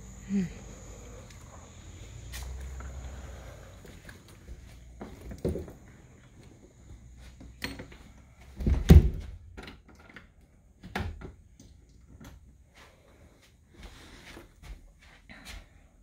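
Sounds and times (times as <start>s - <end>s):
knocks and thumps: 8.5s - 9.8s.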